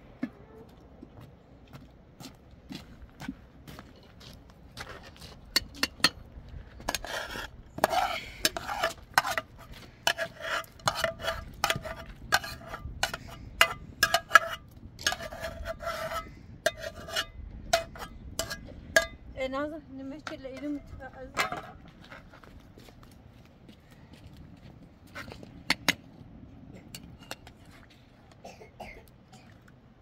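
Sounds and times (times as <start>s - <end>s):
utensil scraping a metal pot: 6.8s - 19.2s.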